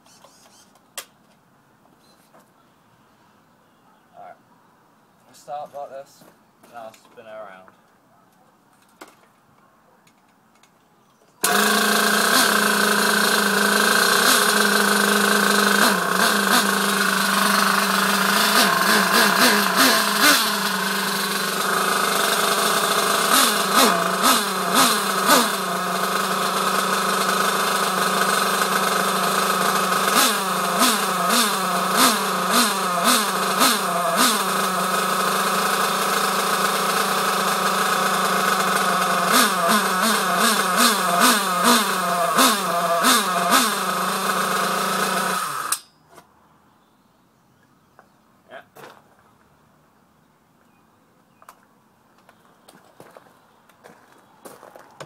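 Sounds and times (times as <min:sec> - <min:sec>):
model car engine idling and revving: 0:11.4 - 0:45.8.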